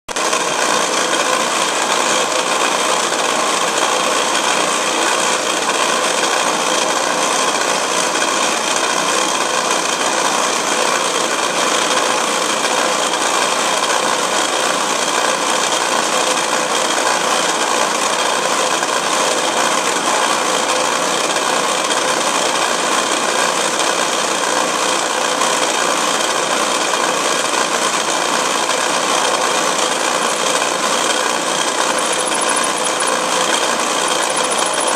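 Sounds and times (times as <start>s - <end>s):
lathe drilling metal: 0.1s - 34.9s.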